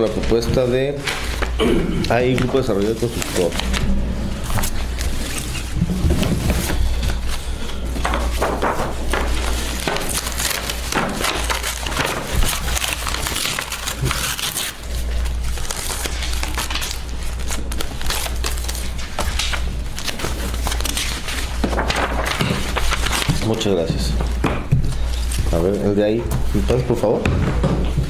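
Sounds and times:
paper rustling and crinkling: 0.0s - 28.0s
low hum: 1.6s - 8.5s.

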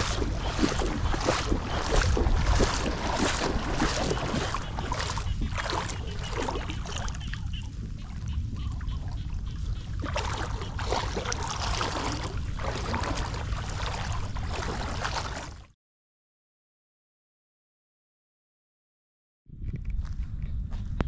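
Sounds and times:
low rumble: 0.0s - 6.8s
floodwater running and trickling: 0.0s - 15.7s.

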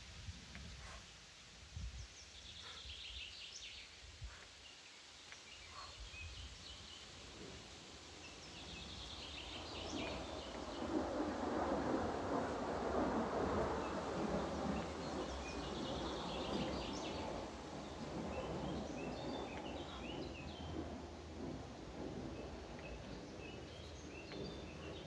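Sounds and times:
forest ambience: 0.6s - 25.0s
small birds trilling: 2.5s - 3.1s.

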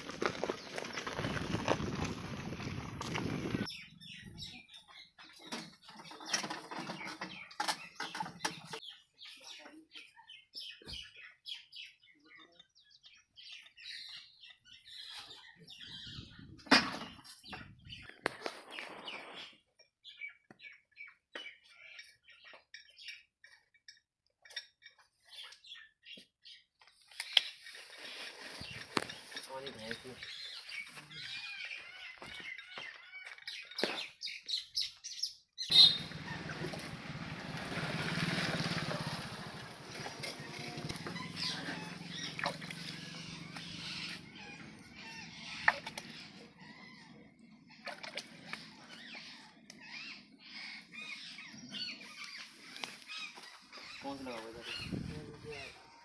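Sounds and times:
wheeled cart rattling over ground: 0.0s - 3.7s, 5.3s - 8.8s, 35.8s - 45.6s
small birds chirping: 0.0s - 56.0s.

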